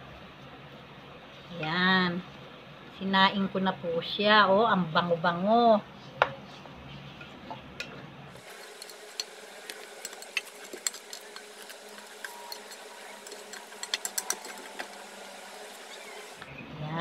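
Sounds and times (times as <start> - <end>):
spatula clicking and scraping in wok: 8.4 - 16.5.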